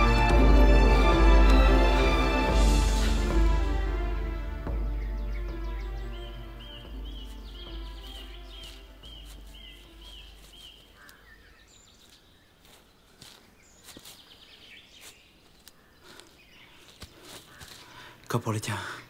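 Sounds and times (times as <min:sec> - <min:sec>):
film score music: 0:00.0 - 0:11.6
faint bird call: 0:06.6 - 0:12.2
rustles in undergrowth: 0:06.7 - 0:18.4
twig snaps: 0:08.0 - 0:11.3.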